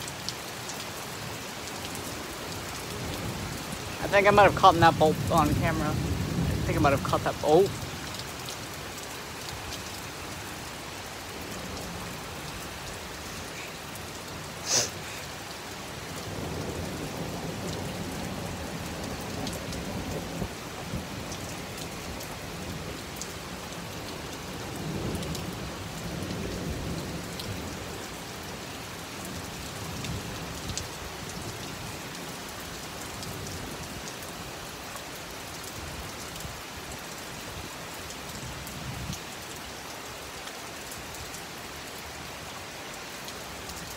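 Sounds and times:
heavy rain: 0:00.0 - 0:43.9.

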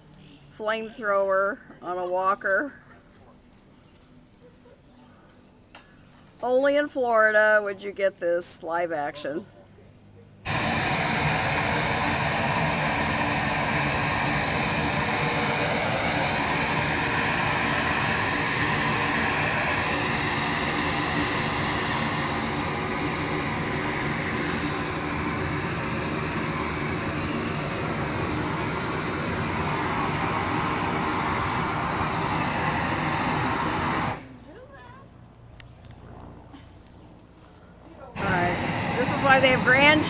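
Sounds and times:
gas torch roaring: 0:10.4 - 0:34.4, 0:38.2 - 0:40.0.

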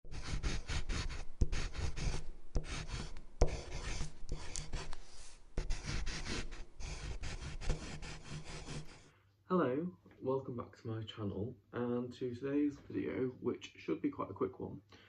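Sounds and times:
pen scratching across paper: 0:00.0 - 0:09.1.

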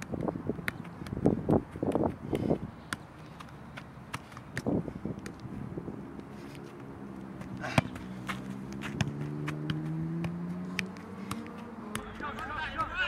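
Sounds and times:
soccer ball taps on foot: 0:00.0 - 0:05.5, 0:07.4 - 0:12.9.

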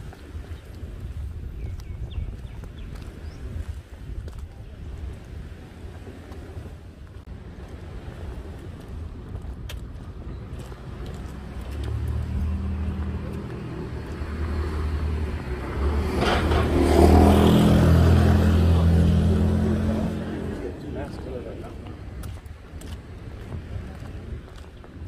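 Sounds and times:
vehicle engine hum: 0:09.9 - 0:22.6.

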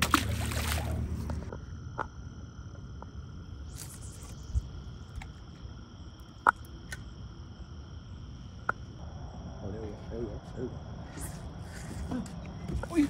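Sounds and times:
night insects trilling: 0:00.1 - 0:13.0.

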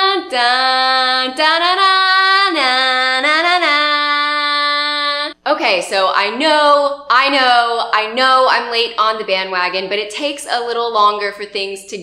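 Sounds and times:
woman singing long notes: 0:00.0 - 0:05.4.

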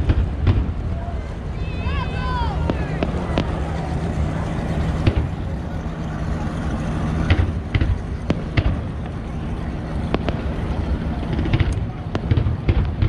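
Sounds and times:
fireworks bangs and pops: 0:00.0 - 0:01.0, 0:02.6 - 0:03.8, 0:04.9 - 0:13.0
steady low rumble: 0:00.0 - 0:13.0.

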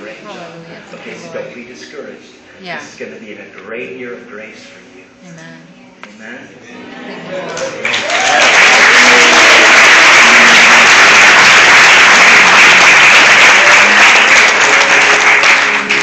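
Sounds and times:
crowd applauding: 0:07.3 - 0:16.0.

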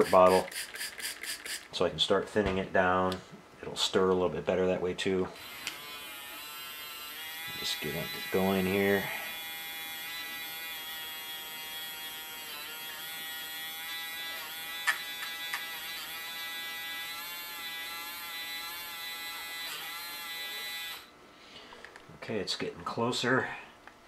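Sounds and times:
paint mixer motor buzzing: 0:00.0 - 0:01.7.

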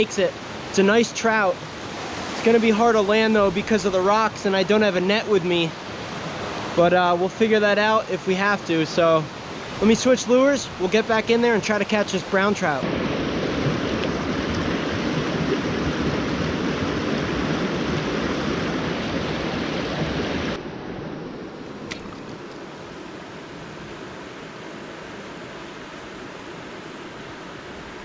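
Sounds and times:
water rushing over rocks: 0:00.0 - 0:20.6.

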